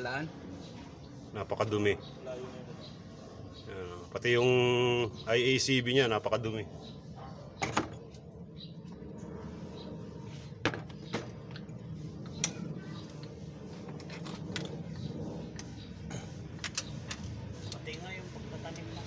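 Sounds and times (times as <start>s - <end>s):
low background hum: 0.0s - 19.0s
tools clicking and knocking: 16.6s - 18.0s.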